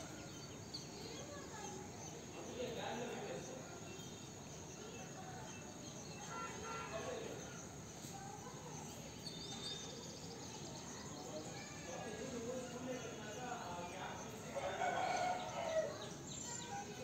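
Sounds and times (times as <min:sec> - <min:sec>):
bird chirps: 0:09.1 - 0:11.7.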